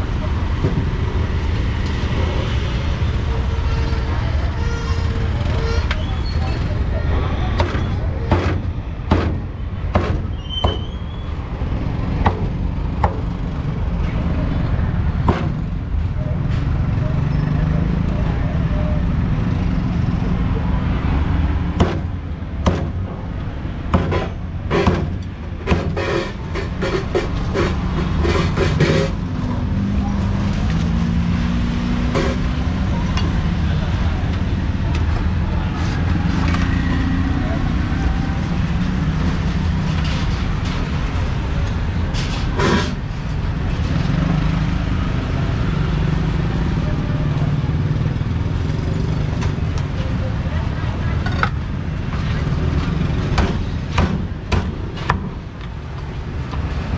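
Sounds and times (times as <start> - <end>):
street traffic rumble: 0.0 - 56.9
cleaver chopping on wooden block: 23.9 - 25.1.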